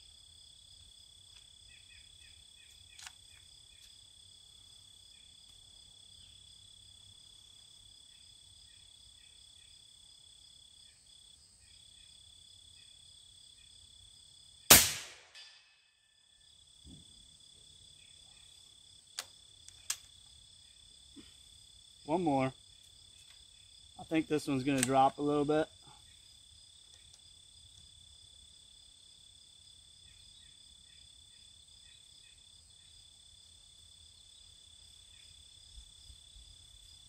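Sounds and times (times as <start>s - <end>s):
insects buzzing: 0.0s - 15.4s, 16.0s - 37.0s
crickets chirping: 0.0s - 37.0s
air rifle shot: 14.7s - 15.5s.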